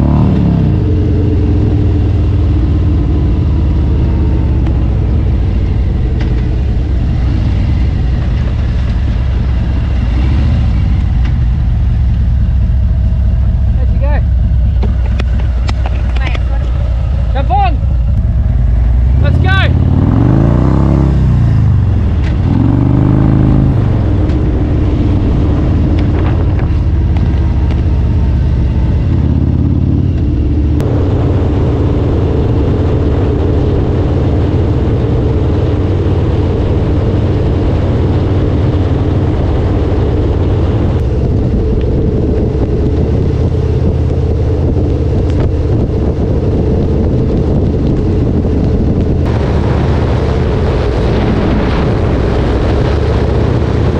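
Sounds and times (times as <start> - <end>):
motorcycle engine revving: 0.0 - 53.9.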